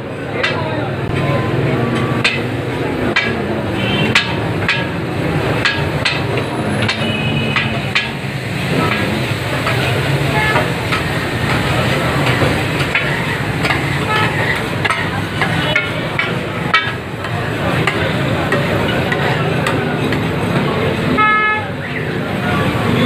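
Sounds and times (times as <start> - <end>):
metal spatulas clanking on griddle: 0.4 - 1.2, 1.9 - 20.3
frying sizzle: 0.4 - 21.4.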